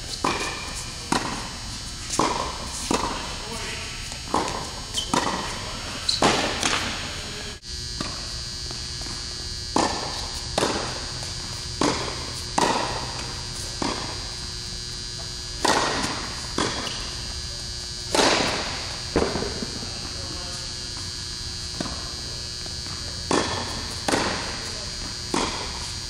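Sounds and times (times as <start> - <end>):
steady background hum: 0.0 - 26.0
tennis balls bouncing: 0.1 - 7.0, 9.8 - 14.2, 15.6 - 17.0, 18.1 - 18.6, 23.0 - 24.7, 25.3 - 25.8
tennis balls hit by rackets: 0.1 - 7.4, 9.8 - 14.3, 15.6 - 17.3, 18.1 - 20.5, 21.8 - 25.8.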